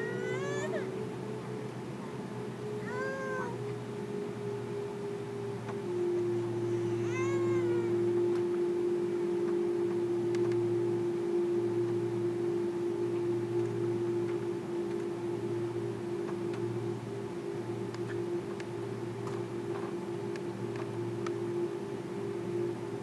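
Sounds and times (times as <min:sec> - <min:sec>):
aircraft engine hum: 0:00.0 - 0:23.0
meow-like cry: 0:07.0 - 0:07.9.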